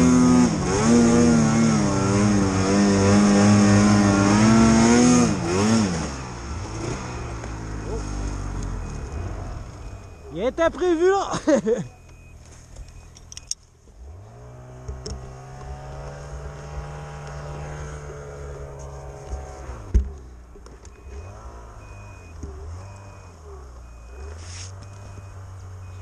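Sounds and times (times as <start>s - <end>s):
snowmobile engine revving: 0.0s - 11.9s, 14.0s - 20.0s, 21.1s - 26.0s
short high beeps: 8.8s - 10.6s, 11.8s - 13.6s, 20.9s - 26.0s.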